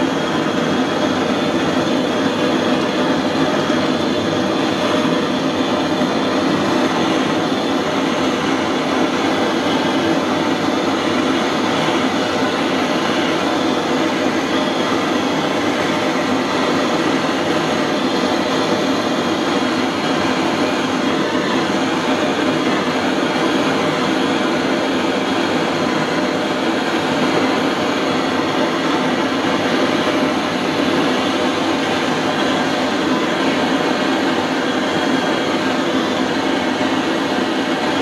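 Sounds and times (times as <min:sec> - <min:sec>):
blowtorch flame rushing: 0:00.0 - 0:38.0.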